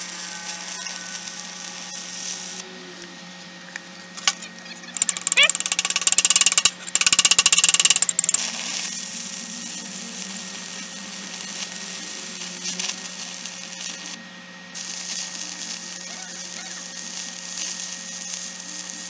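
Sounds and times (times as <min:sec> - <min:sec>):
welding arc crackling and hissing: 0:00.0 - 0:02.6, 0:04.2 - 0:19.0
chipping hammer tapping on steel: 0:05.0 - 0:08.4.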